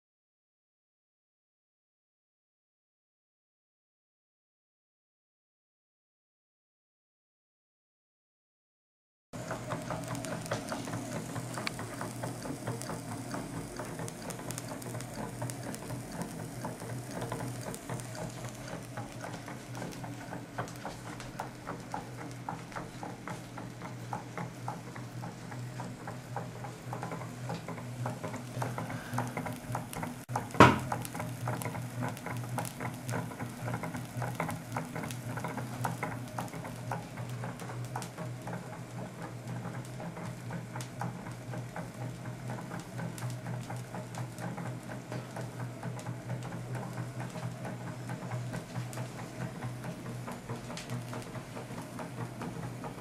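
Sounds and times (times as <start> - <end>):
sharp knock: 30.6 - 30.9.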